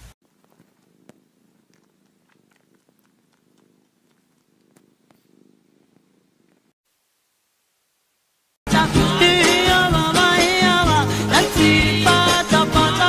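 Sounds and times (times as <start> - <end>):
cat purring faintly: 0.2 - 6.8
faint clicks: 0.4 - 5.3.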